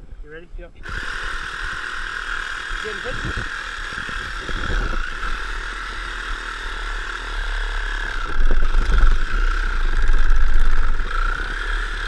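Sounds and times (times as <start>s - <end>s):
reciprocating saw cutting antler: 0.8s - 12.0s.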